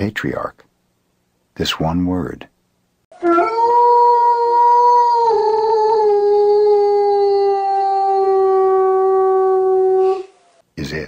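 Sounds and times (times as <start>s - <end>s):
dog howling: 3.1s - 10.4s.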